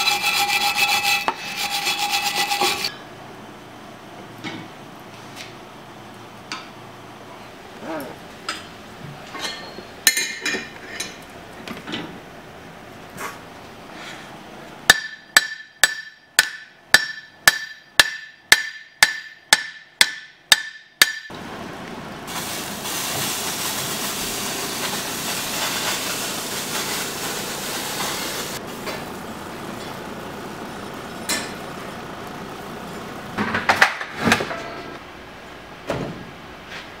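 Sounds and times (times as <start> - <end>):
steady hiss: 22.3 - 33.2.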